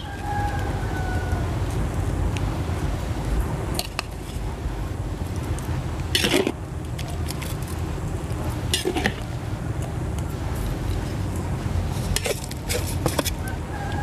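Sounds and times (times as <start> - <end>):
low rumble: 0.0 - 14.0
metal spatula scraping a wok: 6.1 - 6.6, 8.7 - 9.2.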